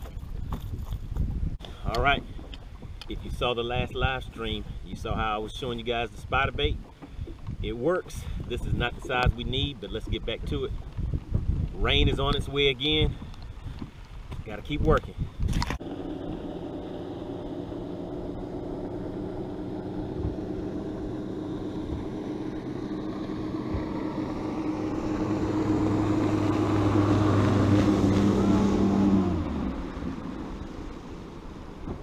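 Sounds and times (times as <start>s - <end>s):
boat outboard motor running: 1.6s - 32.0s.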